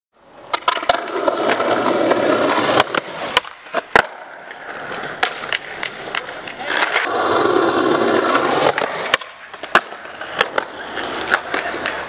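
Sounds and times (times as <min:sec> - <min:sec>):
skateboard wheels rolling on paving: 0:00.2 - 0:12.0
skateboard clacks: 0:00.3 - 0:12.0.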